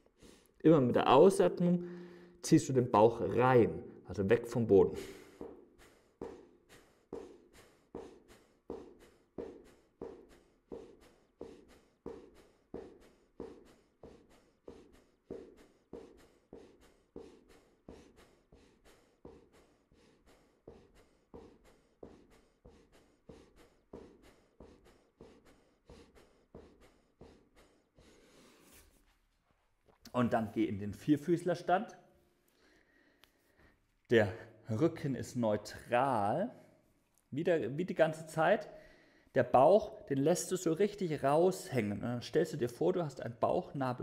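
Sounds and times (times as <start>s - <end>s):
man breathing out sharply: 1.8s - 2.4s.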